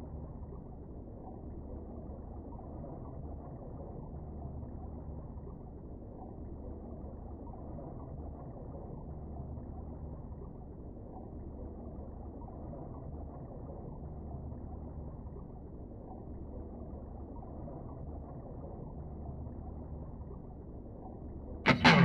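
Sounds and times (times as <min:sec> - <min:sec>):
muffled underwater rumble: 0:00.0 - 0:22.0.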